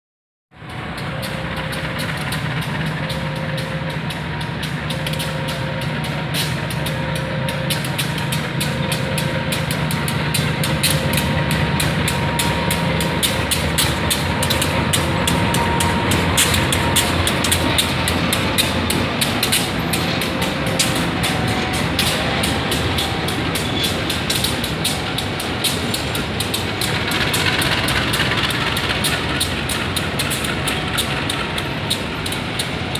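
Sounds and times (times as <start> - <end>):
diesel engine droning: 0.5 - 32.9
rapid clicking of wheels: 0.6 - 32.9
mid-pitched beeping tone: 10.4 - 25.6.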